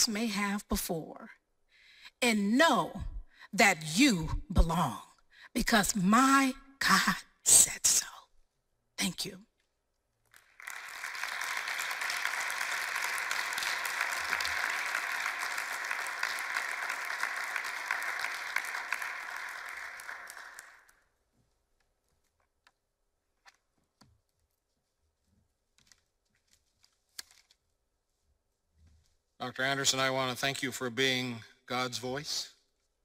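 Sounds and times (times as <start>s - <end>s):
audience applauding: 10.3s - 21.0s.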